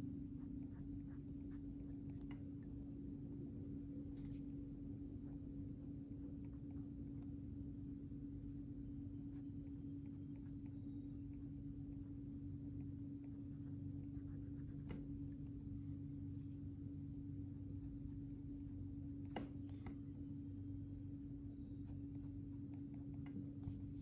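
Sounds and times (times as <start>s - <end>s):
low hum: 0.0s - 24.0s
pencil scratching on paper: 9.3s - 15.0s, 21.8s - 24.0s.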